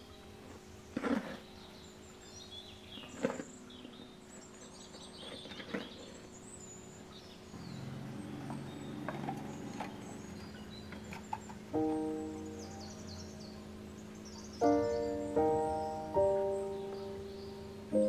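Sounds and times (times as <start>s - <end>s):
small birds chirping: 0.0s - 18.0s
steady low hum: 0.0s - 18.0s
low buzz: 6.4s - 18.0s.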